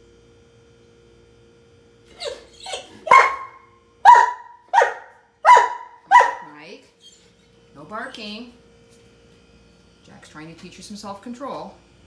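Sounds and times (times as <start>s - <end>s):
dog barking: 2.2s - 6.6s.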